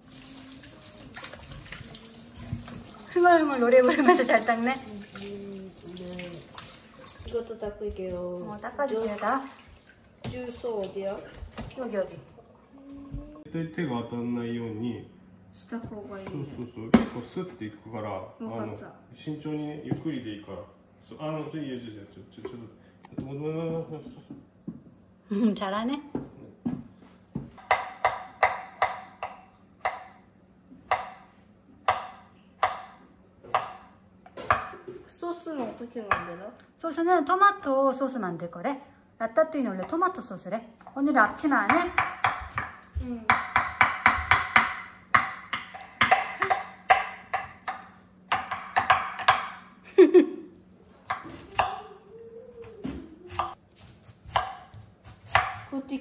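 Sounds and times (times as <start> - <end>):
knife chopping on cutting board: 26.1 - 30.2, 41.6 - 49.6, 51.0 - 51.8, 52.7 - 55.8.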